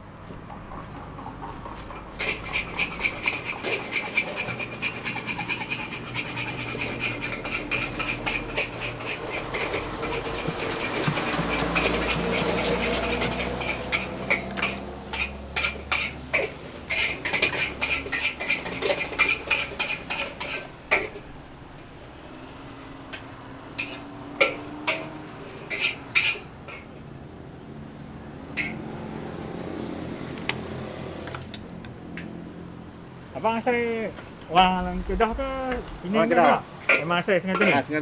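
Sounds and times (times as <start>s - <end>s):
metal spatula scraping a wok: 2.2s - 21.3s, 23.7s - 27.0s, 28.6s - 28.8s, 36.2s - 38.0s.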